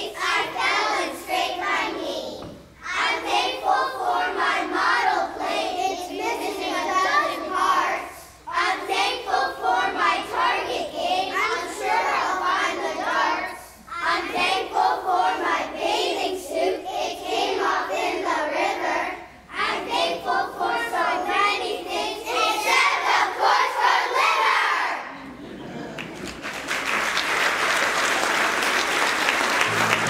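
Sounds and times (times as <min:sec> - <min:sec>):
children's choir singing: 0:00.0 - 0:25.8, 0:28.0 - 0:30.0.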